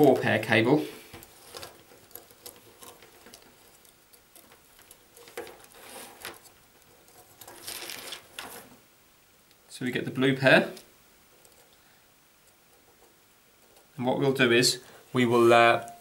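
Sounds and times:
hands handling plastic cable: 0.0 - 8.8
scraping on plastic: 1.0 - 8.8.

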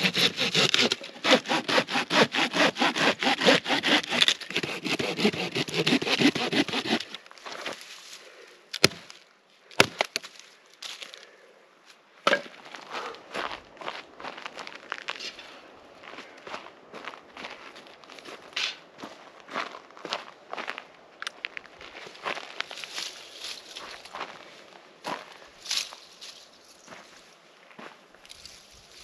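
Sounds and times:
pruning saw cutting branch: 0.0 - 7.2.

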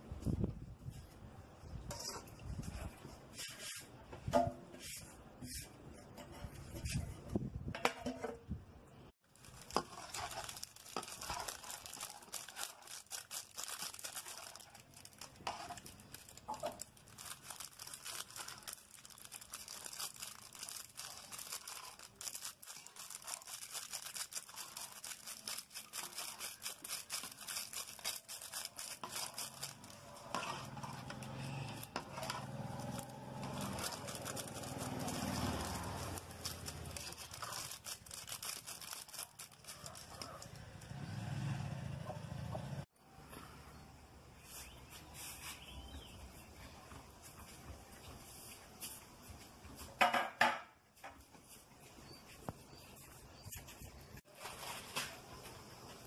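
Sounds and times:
pot of water boiling: 9.2 - 17.2
wood fire crackling: 9.2 - 41.0
ladle stirring a pot: 9.4 - 12.8, 13.9 - 17.2, 24.6 - 38.1.

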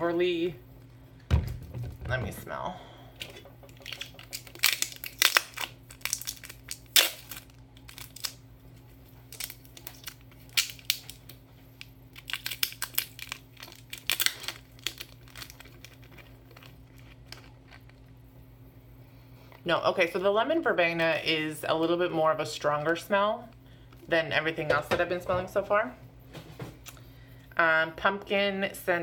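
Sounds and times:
plastic wrap crinkling and tearing: 3.6 - 8.4, 9.0 - 17.9.

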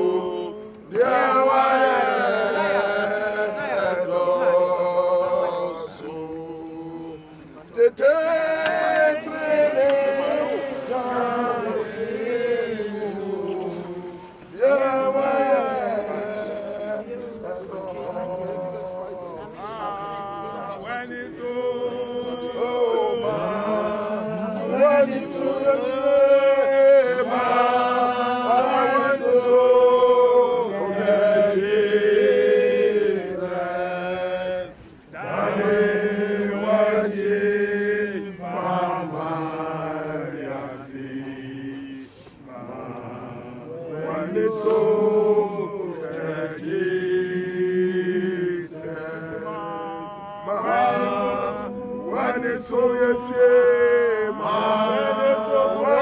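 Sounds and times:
group singing a hymn: 0.0 - 56.0.

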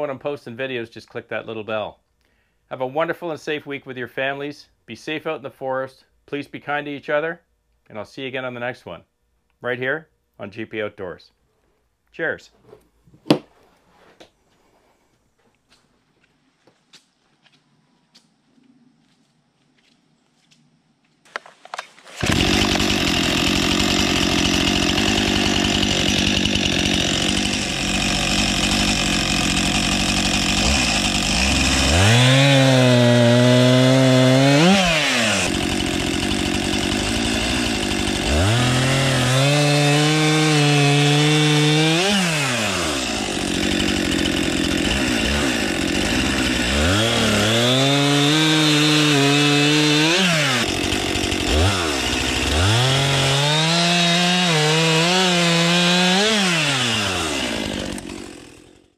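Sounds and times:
chainsaw cutting through log: 22.1 - 58.9.

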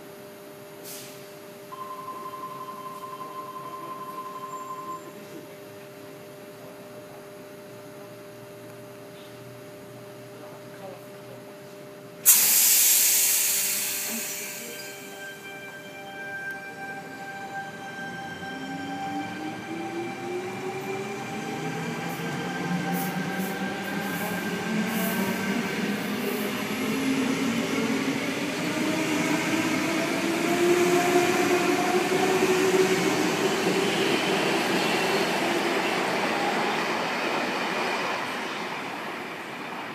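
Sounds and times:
electric train pulling out: 12.3 - 39.6.

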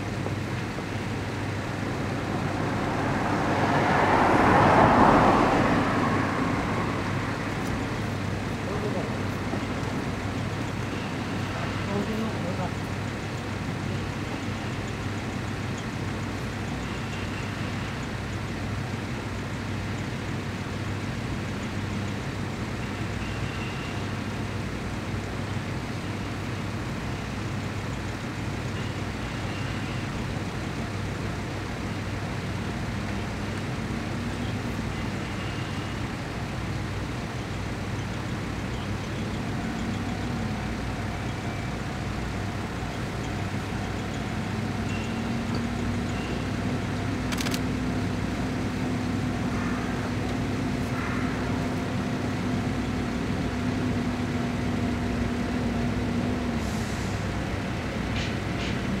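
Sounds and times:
engine drone: 0.0 - 59.0
road traffic noise: 0.0 - 59.0
sharp click: 47.3 - 47.6.

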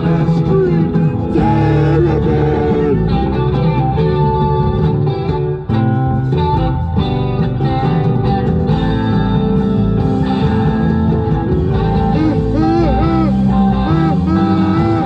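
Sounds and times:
guitar-led rock music: 0.0 - 15.0.

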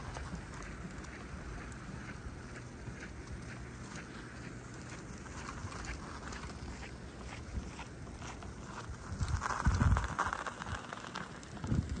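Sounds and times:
bicycle rattling: 0.0 - 12.0
wind buffeting microphone: 0.0 - 12.0.

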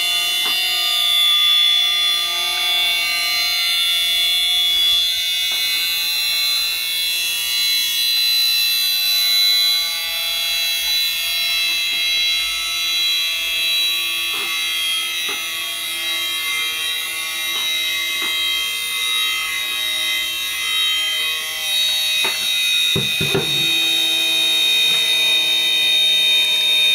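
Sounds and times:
gyro rotor whining: 14.4 - 26.9
unit set down on table: 23.0 - 24.0
knocks on housing: 23.0 - 24.5.

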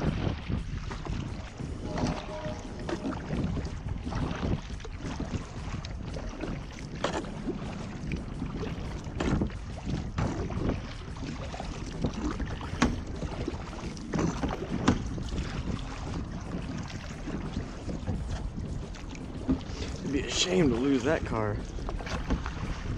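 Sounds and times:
paddle splashing in water: 0.0 - 22.9
steady low rumble: 0.0 - 22.9.

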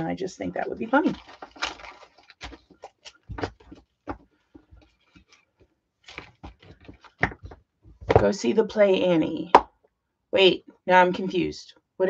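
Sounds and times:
paper rustling: 0.8 - 7.6.

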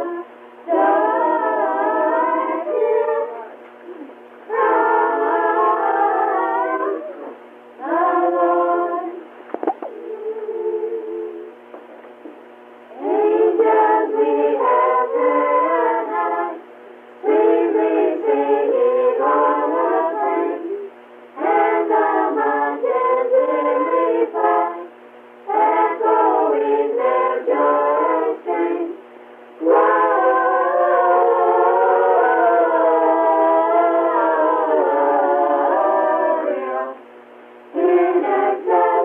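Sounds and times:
children singing a carol: 0.0 - 3.6, 4.5 - 9.2, 13.0 - 16.6, 17.2 - 24.9, 25.5 - 29.0, 29.6 - 37.0, 37.8 - 39.0.

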